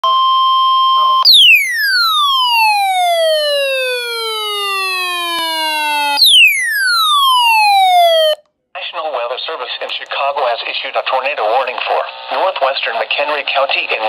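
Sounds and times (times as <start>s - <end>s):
weather radio alert siren wailing: 0.8s - 8.4s.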